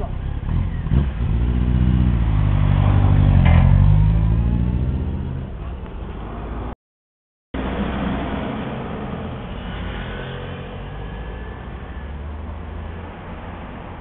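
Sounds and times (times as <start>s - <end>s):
motorcycle engine accelerating: 0.0s - 5.5s.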